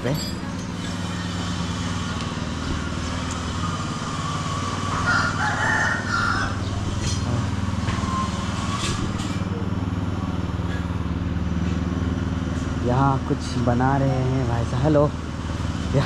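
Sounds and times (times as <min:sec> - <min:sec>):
engine running steadily: 0:00.0 - 0:16.0
rooster crowing: 0:04.2 - 0:07.0.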